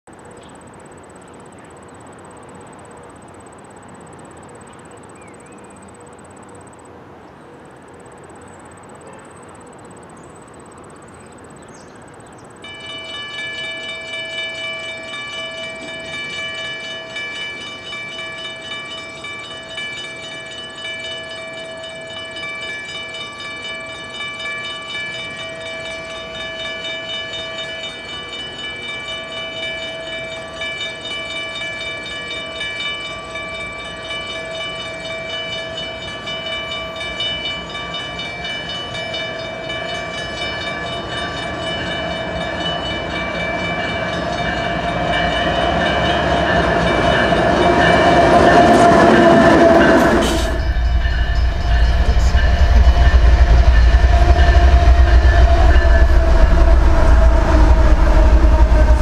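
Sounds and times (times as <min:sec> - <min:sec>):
steady background hiss: 0:00.1 - 0:44.7
railway warning bell ringing: 0:07.7 - 0:59.0.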